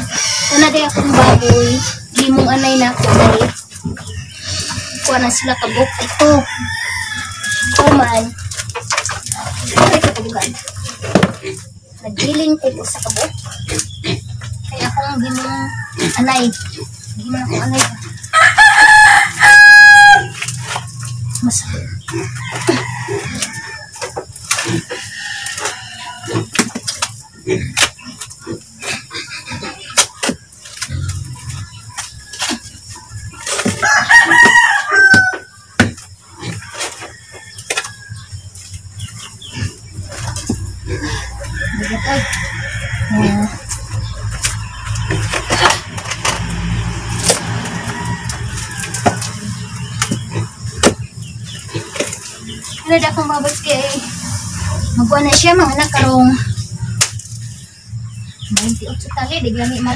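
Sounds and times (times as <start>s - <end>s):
hoe chopping and scraping dirt: 0.0s - 5.2s, 22.5s - 38.1s
chickens clucking: 0.0s - 59.9s
rooster crowing: 5.0s - 8.3s, 14.8s - 16.8s, 18.1s - 20.4s, 22.2s - 26.5s, 33.4s - 35.7s, 40.9s - 45.4s, 46.2s - 50.3s.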